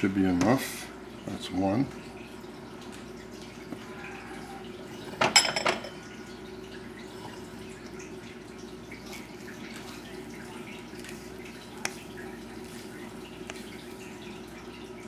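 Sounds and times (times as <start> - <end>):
glasses clinking: 5.2 - 6.0.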